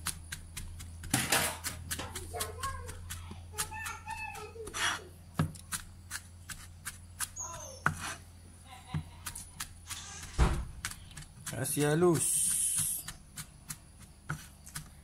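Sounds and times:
knife chopping on cutting board: 0.0 - 8.2, 8.9 - 15.0
heavy knife thump: 10.4 - 10.7.

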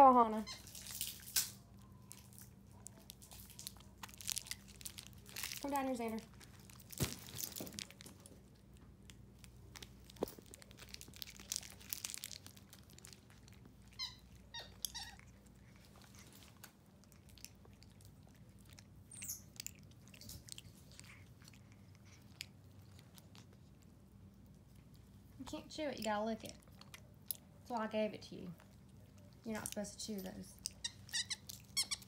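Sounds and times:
monkey crunching candy: 0.5 - 25.4, 26.3 - 27.6, 28.5 - 32.0
monkey squeaks: 19.1 - 19.6, 30.8 - 32.0.

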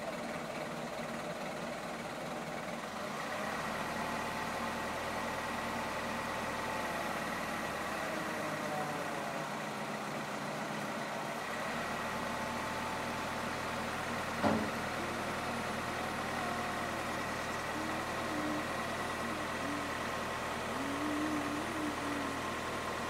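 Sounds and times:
vehicle engine idling: 0.0 - 23.0
short knock: 14.4 - 14.8.

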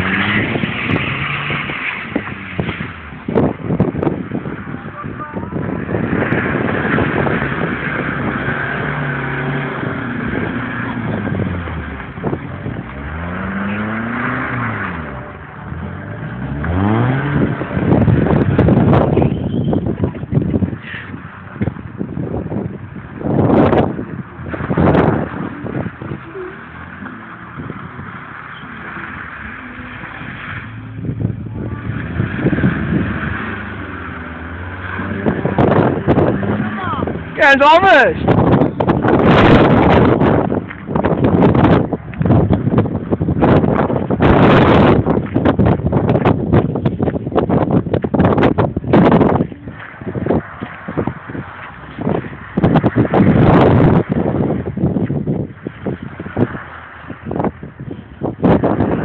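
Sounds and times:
car engine revving hard: 0.0 - 4.8, 5.5 - 19.8, 21.9 - 46.5
wheels spinning on snow: 5.6 - 59.0.

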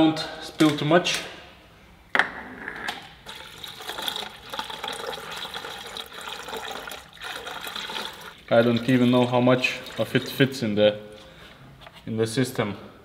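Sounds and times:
water gurgling through a funnel: 3.3 - 10.5.

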